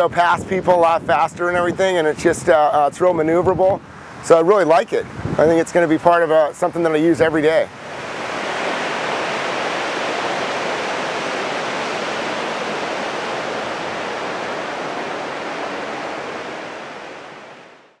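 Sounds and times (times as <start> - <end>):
ocean surf breaking: 7.1 - 18.0.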